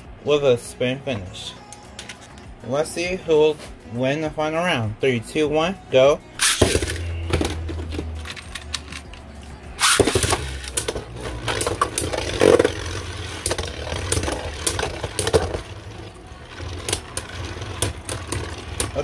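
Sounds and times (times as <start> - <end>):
spinning tops clacking together: 6.4 - 19.0
spinning tops whirring: 6.4 - 19.0.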